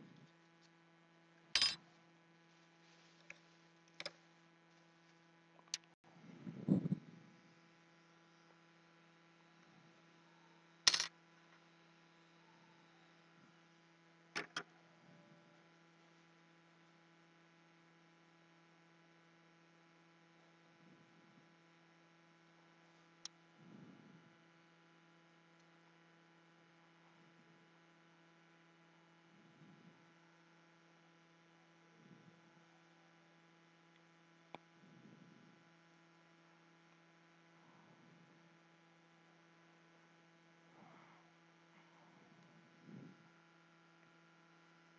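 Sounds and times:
steady electrical hum: 0.0 - 44.9
soft handling sounds: 1.8 - 5.3.

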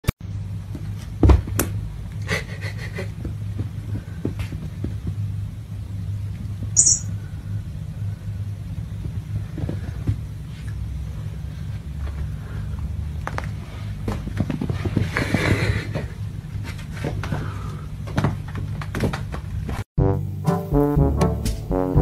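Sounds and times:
short high-pitched squeak: 6.8 - 7.1
kittens' paws thudding on carpet: 13.2 - 17.4.

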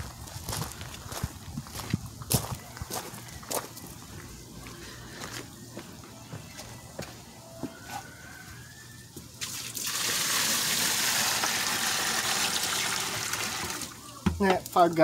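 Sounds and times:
water pouring from a bucket: 9.4 - 14.2.

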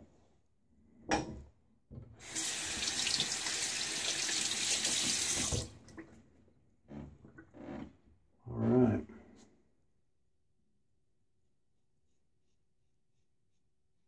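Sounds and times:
tap water running into sink: 2.2 - 6.1.

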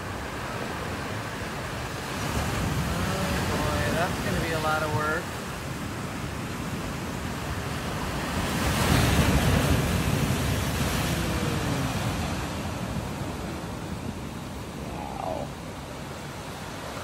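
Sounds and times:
surf washing over rocks: 0.0 - 17.0
wind on microphone: 5.8 - 17.0.

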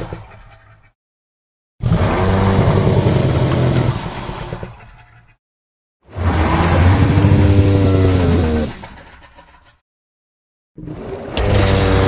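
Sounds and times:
deep creature growling: 1.8 - 4.2, 6.1 - 9.0.

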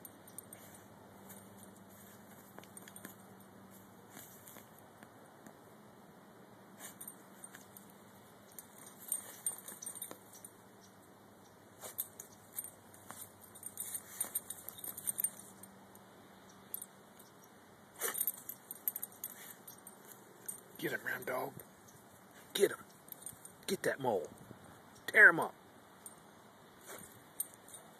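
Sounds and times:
dog digging in dirt: 0.4 - 4.8, 6.8 - 10.4, 26.8 - 27.2.

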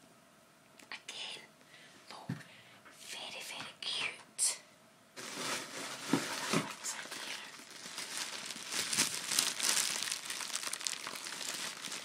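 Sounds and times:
tissue paper crumpling: 5.2 - 12.0.

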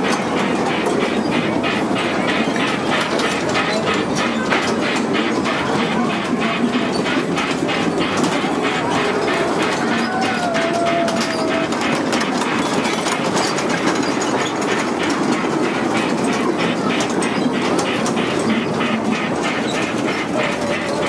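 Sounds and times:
ride-on train wheels clicking: 0.0 - 21.0.

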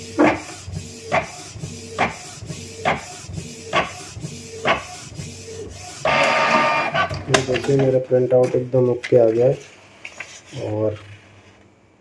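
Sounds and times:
printer motor whine: 0.0 - 7.8.

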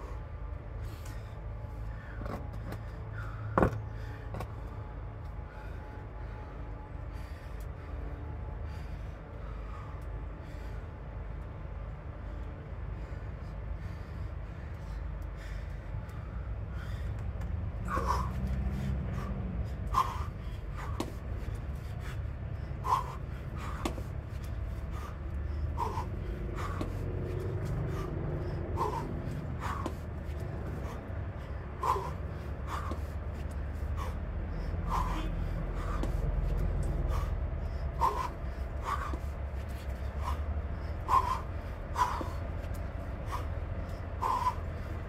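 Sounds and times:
person breathing hard: 0.0 - 45.0.

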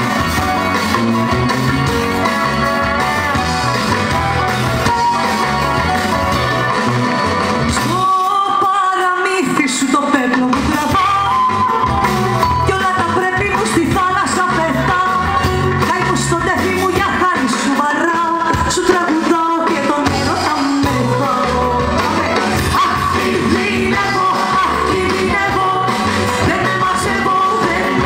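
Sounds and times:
guitar: 0.0 - 28.0
woman singing into microphone: 7.7 - 11.8, 12.6 - 28.0.

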